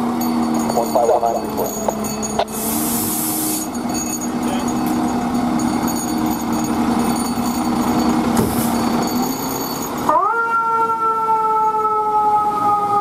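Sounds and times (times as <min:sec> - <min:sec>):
diesel engine droning: 0:00.0 - 0:13.0
air hiss bursts: 0:02.5 - 0:03.7.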